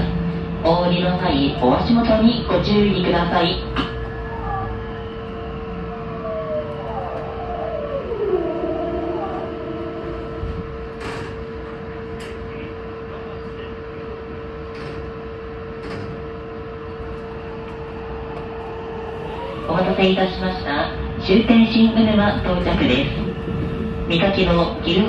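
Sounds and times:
electric train inverter whine: 0:00.0 - 0:25.0
steady tone and rumble: 0:00.0 - 0:25.0.

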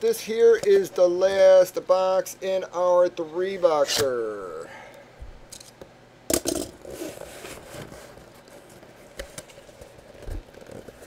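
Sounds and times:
cardboard rustling: 0:06.8 - 0:11.0
cardboard scraping: 0:06.8 - 0:11.0.

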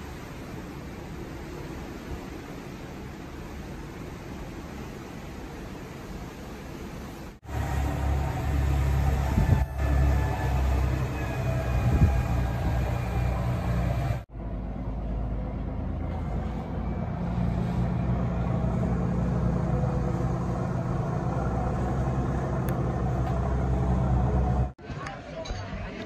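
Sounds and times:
boat engine droning: 0:07.4 - 0:25.3.

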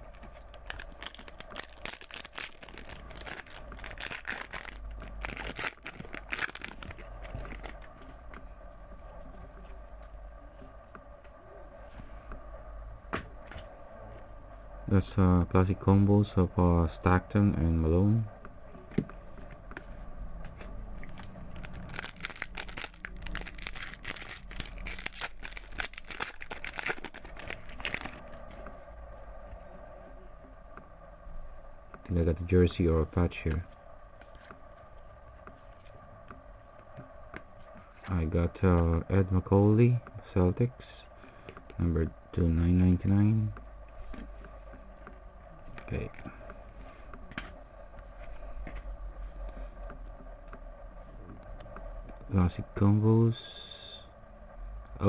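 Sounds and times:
cards being handled: 0:00.0 - 0:08.4, 0:20.5 - 0:28.7
foil pack tearing and crinkling: 0:00.1 - 0:07.9, 0:21.1 - 0:28.4.

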